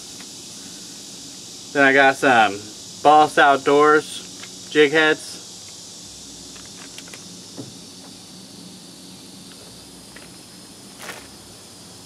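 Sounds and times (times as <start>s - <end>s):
steady high-pitched hiss: 0.0s - 12.0s.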